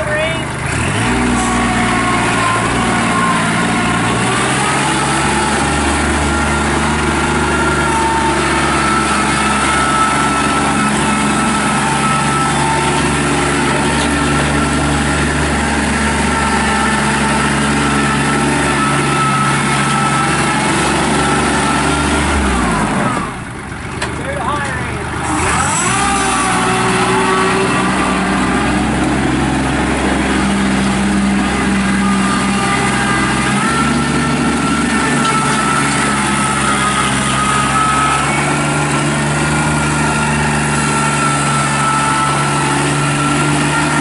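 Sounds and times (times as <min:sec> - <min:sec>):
tractor diesel engine running: 0:00.0 - 0:44.0.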